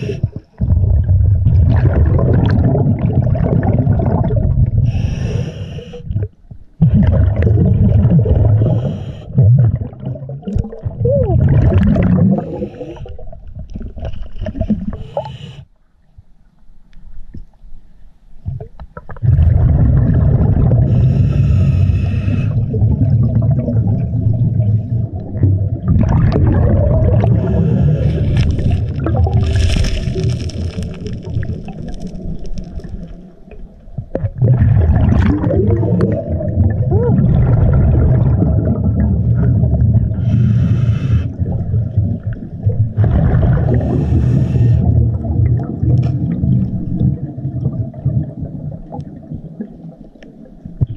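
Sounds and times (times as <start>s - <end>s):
rush of exhaled bubbles: 0.0s - 15.4s, 19.0s - 50.0s
regulator breath hissing: 4.9s - 6.0s, 14.9s - 15.7s, 20.9s - 22.6s, 40.2s - 41.4s, 43.8s - 44.9s.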